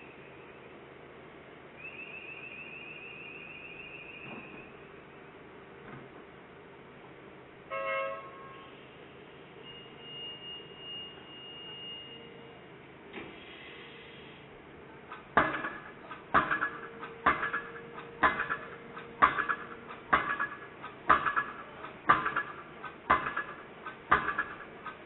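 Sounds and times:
piling hammer metallic blows: 15.1 - 25.0.

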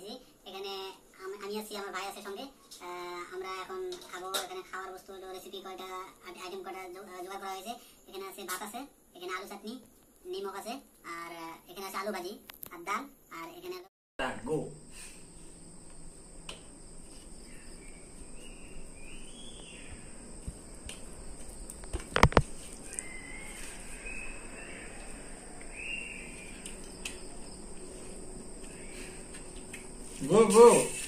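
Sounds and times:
steady high whine: 14.2 - 31.0
short chirping calls: 17.5 - 20.2, 22.8 - 27.3.

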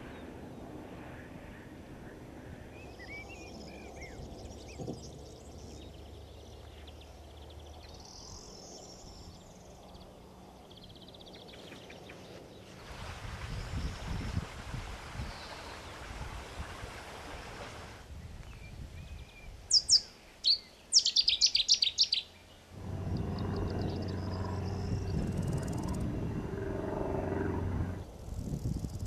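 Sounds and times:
steady low drone: 22.8 - 28.2.

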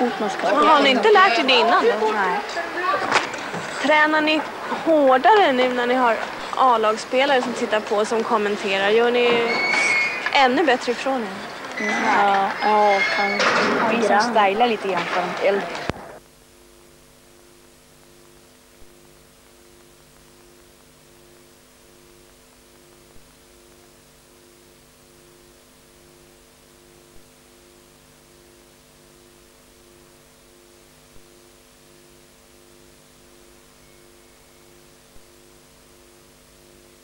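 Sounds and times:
electrical hum: 0.0 - 37.0
tape hiss: 0.0 - 37.0
low pulsing tone: 16.2 - 37.0.

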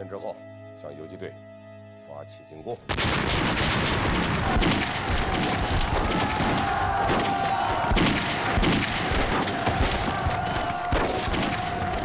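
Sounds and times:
rifle and machine-gun fire: 2.9 - 12.0.

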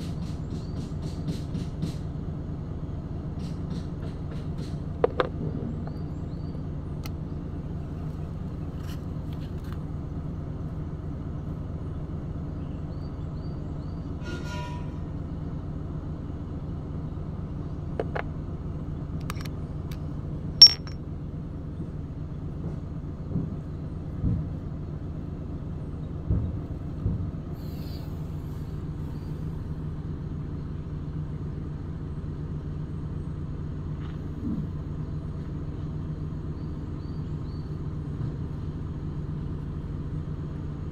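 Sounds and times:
low engine drone: 0.0 - 40.9
light metal clicks and knocks: 19.2 - 20.0, 20.6 - 21.0.

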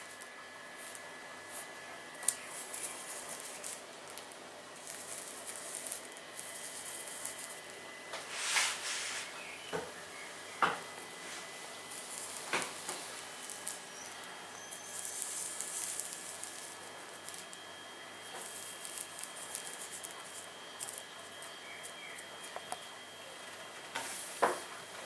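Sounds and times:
finger dragging through rice grains: 8.2 - 9.4.

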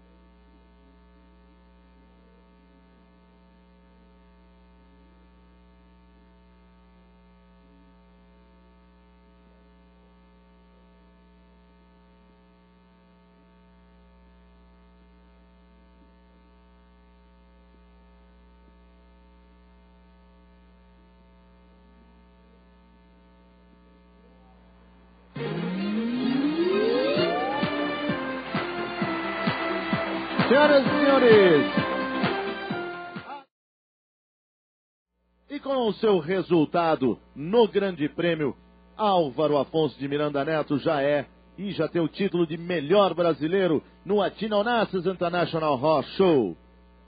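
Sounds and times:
faint electrical hum: 0.0 - 25.4, 35.2 - 47.0.

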